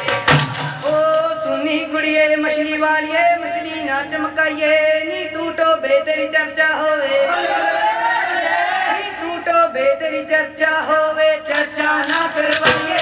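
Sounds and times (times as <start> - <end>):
clacking percussion strikes: 11.5 - 13.0.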